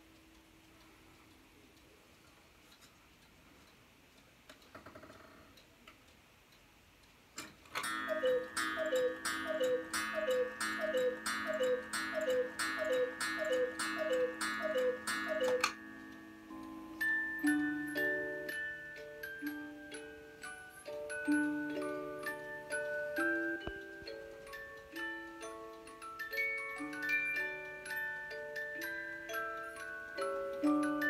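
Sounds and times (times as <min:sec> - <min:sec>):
clock ticking: 0:00.0 - 0:31.0
clock movement whir: 0:07.8 - 0:31.0
two-note cuckoo calls: 0:08.1 - 0:15.8.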